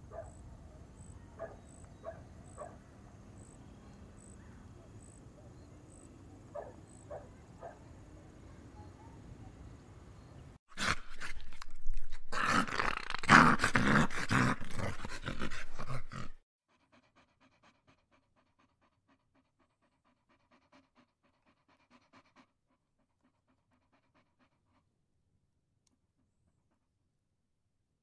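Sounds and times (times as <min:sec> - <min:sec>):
dog panting hard: 0:14.1 - 0:24.9.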